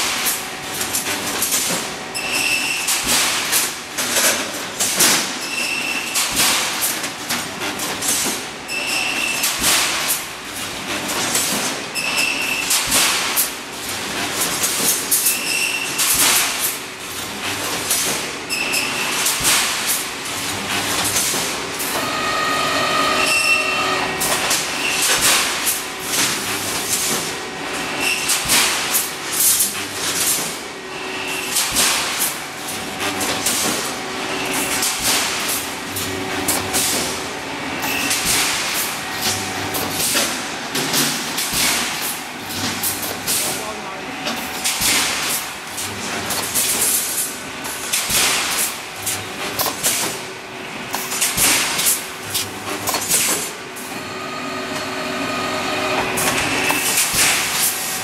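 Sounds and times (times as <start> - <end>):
welding machine clanking: 0.0 - 53.9, 55.8 - 58.0
brief squealing tone: 22.0 - 24.2.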